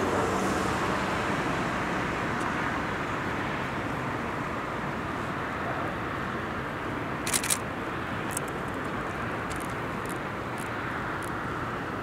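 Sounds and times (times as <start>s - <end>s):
road traffic hum: 0.0s - 12.0s
sharp clicks: 7.2s - 7.6s.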